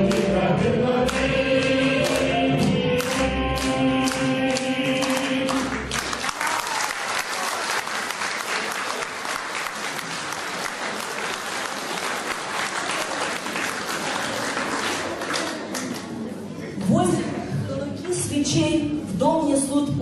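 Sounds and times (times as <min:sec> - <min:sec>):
audience applause: 0:05.0 - 0:16.3.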